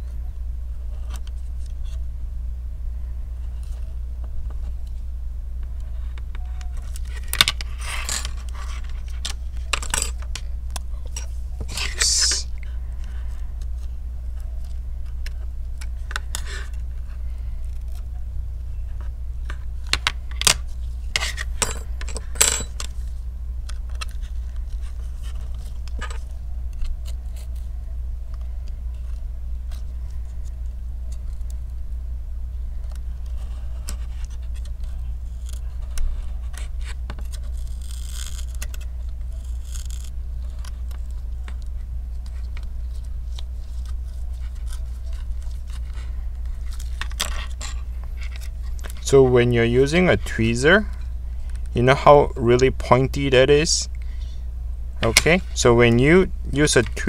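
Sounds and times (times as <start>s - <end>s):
low hum: 0.0s - 57.0s
metal tools clicking and scraping: 6.8s - 10.4s, 20.0s - 23.0s.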